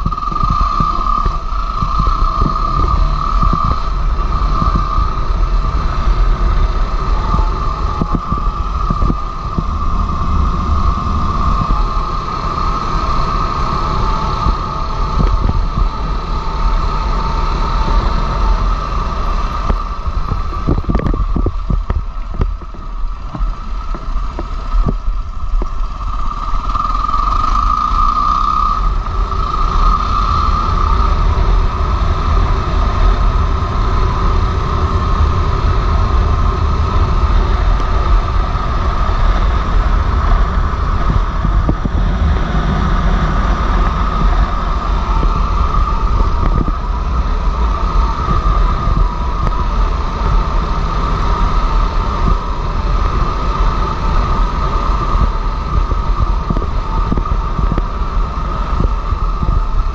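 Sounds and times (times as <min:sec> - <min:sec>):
motorcycle engine running: 0:00.0 - 0:59.9
wind rumble: 0:00.0 - 0:59.9.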